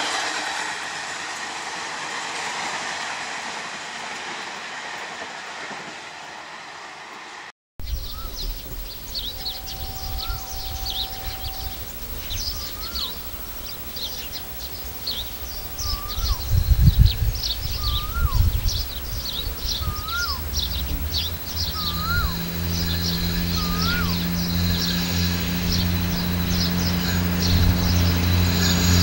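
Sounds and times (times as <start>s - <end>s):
railcar diesel engine drone: 0.0s - 29.0s
bird whistle rising then dropping: 7.8s - 29.0s
high bird chirps: 7.8s - 29.0s
low rumble: 7.8s - 29.0s.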